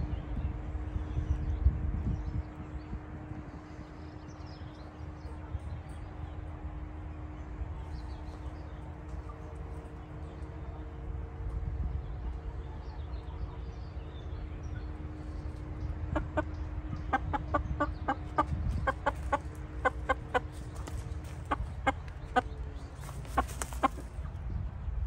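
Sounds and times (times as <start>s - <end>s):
low background rumble: 0.0s - 25.0s
chicken clucking: 15.0s - 24.4s.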